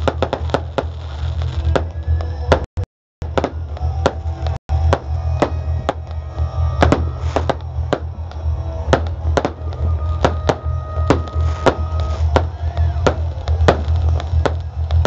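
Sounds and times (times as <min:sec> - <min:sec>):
fireworks banging: 0:00.0 - 0:15.0
music playing: 0:03.2 - 0:15.0.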